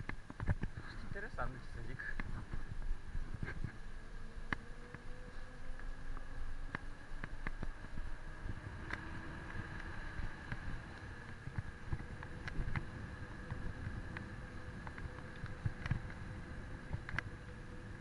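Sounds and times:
bike tyre rumble on tarmac: 0.0s - 18.0s
wind buffeting microphone: 6.2s - 18.0s.

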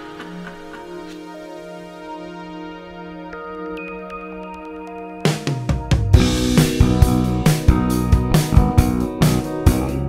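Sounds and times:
sustained instrumental chords: 0.0s - 10.0s
drum kit beat: 5.3s - 10.0s.

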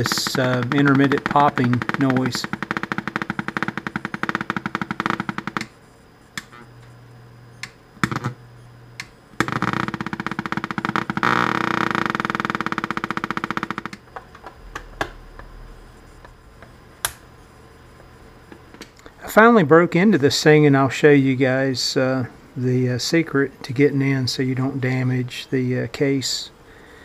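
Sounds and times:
rapid popping from speakers: 0.0s - 5.8s, 7.7s - 8.4s, 9.0s - 17.2s
low hum: 0.0s - 18.6s.

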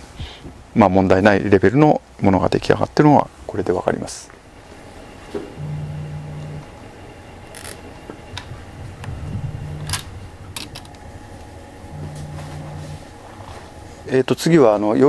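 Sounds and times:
short low hum: 5.5s - 6.8s, 8.8s - 14.1s.

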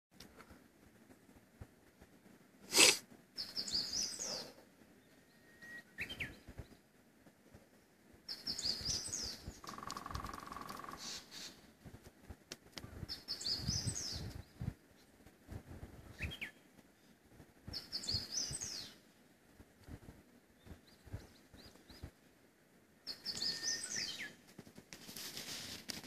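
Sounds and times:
nose snort: 2.7s - 3.0s
songbirds singing: 2.8s - 6.9s, 7.6s - 11.6s, 12.8s - 15.2s, 16.0s - 19.1s, 20.5s - 22.2s, 23.0s - 24.4s
woodpecker drumming: 9.6s - 11.2s.

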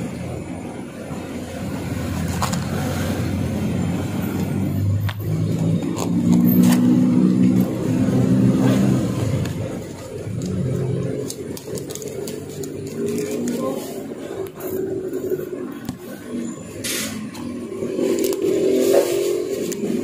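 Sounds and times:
engine running and revving: 0.0s - 20.0s
banknotes clicking: 9.4s - 16.4s.

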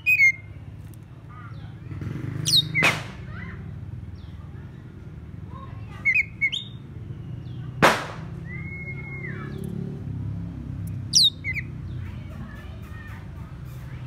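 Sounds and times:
bird chirping and whistling: 0.0s - 0.5s, 2.4s - 3.0s, 5.9s - 7.7s, 8.3s - 9.8s, 11.1s - 11.8s.

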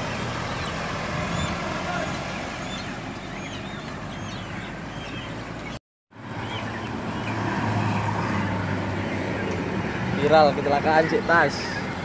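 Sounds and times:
vehicle engine idling: 0.0s - 5.8s.

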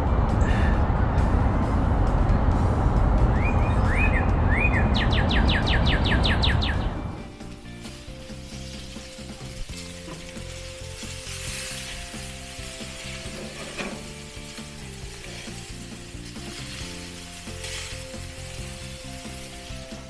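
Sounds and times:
steady rushing background: 0.0s - 9.8s
songbird whistling: 3.3s - 7.3s
steaks sizzling on grill: 7.2s - 20.0s.

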